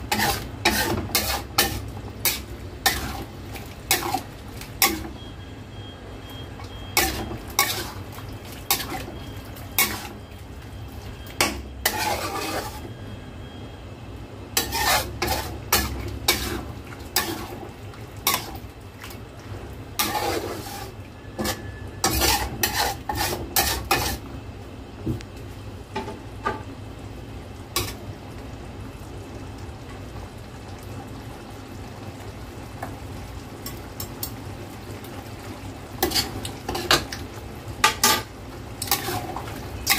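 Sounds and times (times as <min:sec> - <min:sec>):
metal spatula scraping a wok: 0:00.0 - 0:03.3, 0:03.9 - 0:05.1, 0:07.0 - 0:08.1, 0:08.7 - 0:10.2, 0:11.4 - 0:12.9, 0:14.6 - 0:18.6, 0:20.0 - 0:24.3, 0:36.0 - 0:37.1, 0:37.8 - 0:39.9.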